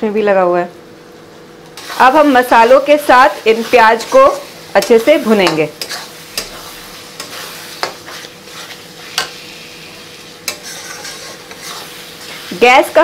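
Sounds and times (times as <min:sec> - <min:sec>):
onions sizzling in oil: 0:00.9 - 0:13.0
metal spatula knocking and scraping pan: 0:10.4 - 0:11.8.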